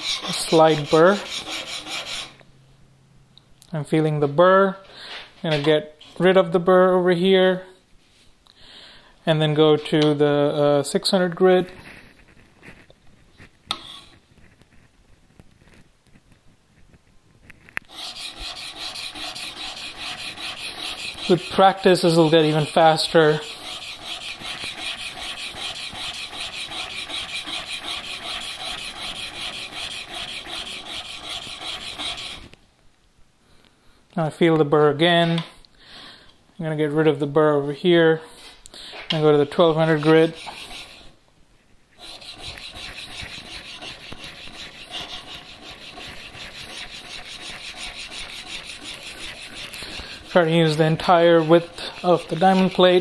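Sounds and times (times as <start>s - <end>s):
chisel scraping on sharpening plate: 0.0s - 2.4s, 17.9s - 32.6s, 39.7s - 41.1s, 42.0s - 53.0s.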